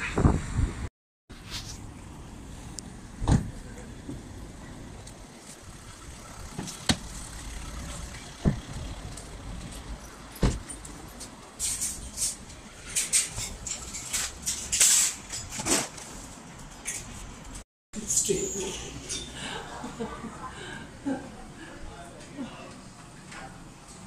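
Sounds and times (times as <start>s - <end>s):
car park background: 0.0s - 24.0s
shopping trolleys rattling: 5.9s - 17.1s.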